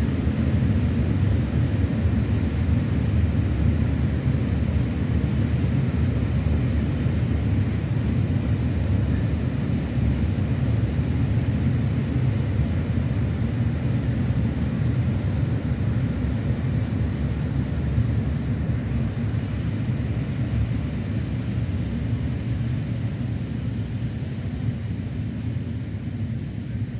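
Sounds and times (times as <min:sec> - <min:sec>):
train wheels rumbling on rails: 0:00.0 - 0:26.9.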